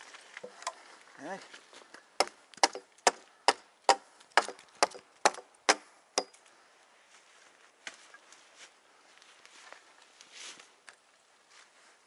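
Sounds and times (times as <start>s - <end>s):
axe chopping wood: 2.2s - 6.4s.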